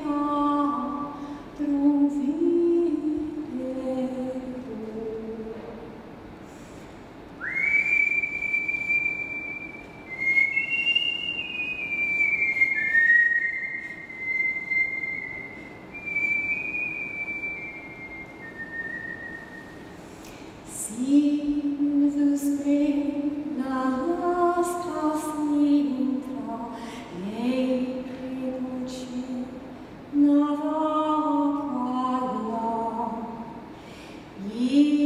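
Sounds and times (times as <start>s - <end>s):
person whistling: 7.4s - 19.9s.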